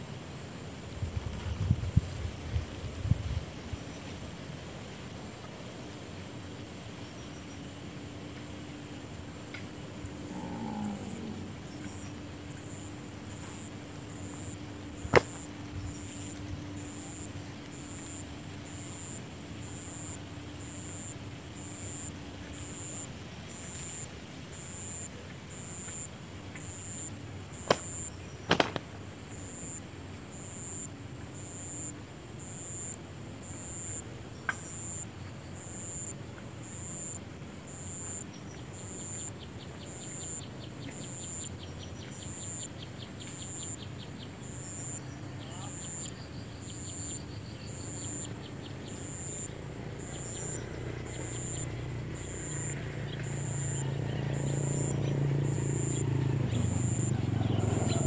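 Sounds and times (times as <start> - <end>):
insects chirping: 0.0 - 58.0
sharp snaps: 15.1 - 15.6, 27.6 - 28.9
bird wings flapping: 27.6 - 28.9.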